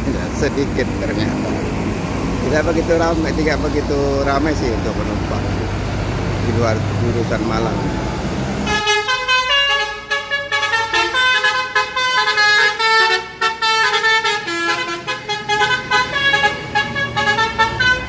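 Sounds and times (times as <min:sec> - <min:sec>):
bus multi-tone horn melody: 0:08.6 - 0:18.0.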